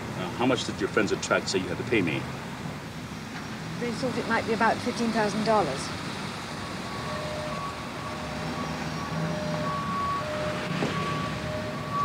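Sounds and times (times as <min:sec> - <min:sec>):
rumble of passing vehicles: 0:00.0 - 0:12.0.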